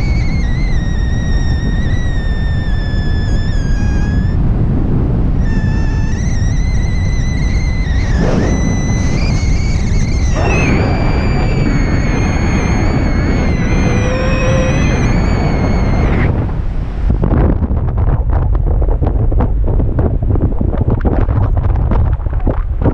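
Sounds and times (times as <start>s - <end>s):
thin high whistle-like tone: 0.0s - 4.4s, 5.4s - 16.5s
wind rushing over microphone: 0.0s - 22.9s.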